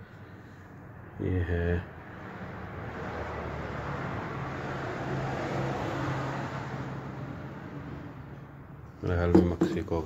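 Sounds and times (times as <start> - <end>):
motor vehicle passing by: 2.0 - 8.6.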